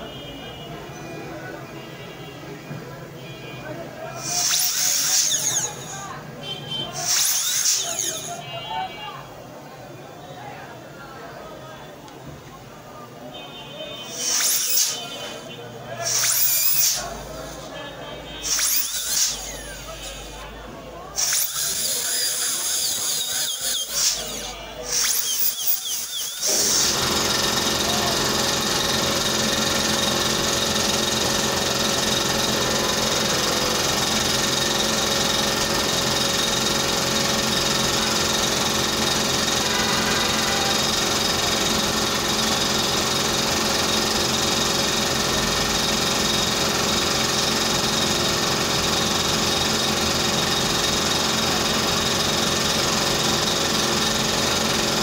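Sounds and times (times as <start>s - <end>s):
dental drill: 4.2s - 6.1s, 7.0s - 8.4s, 14.1s - 17.8s, 18.4s - 20.4s, 21.2s - 33.3s.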